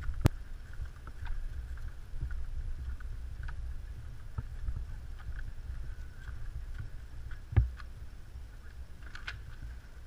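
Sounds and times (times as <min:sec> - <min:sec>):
wind rumble: 0:00.0 - 0:10.0.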